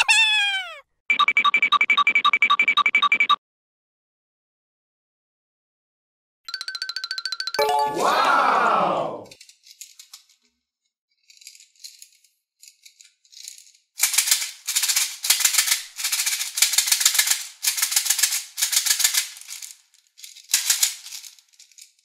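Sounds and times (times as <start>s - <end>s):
plastic beads rattling in toy bottle: 11.2s - 22.0s.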